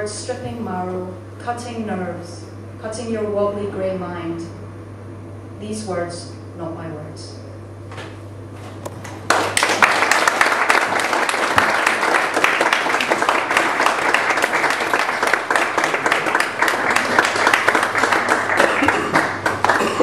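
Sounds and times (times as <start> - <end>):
audience applauding: 9.3 - 20.0.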